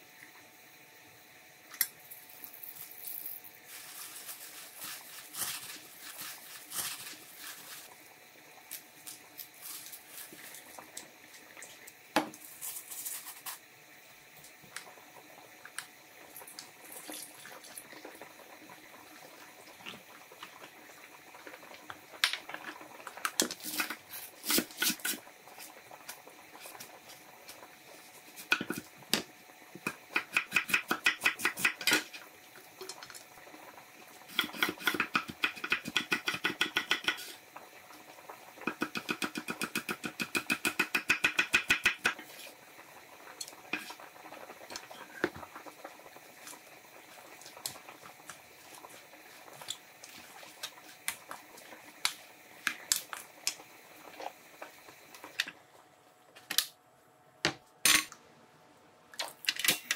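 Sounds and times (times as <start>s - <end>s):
powder poured into steel bowl: 2.1s - 7.9s.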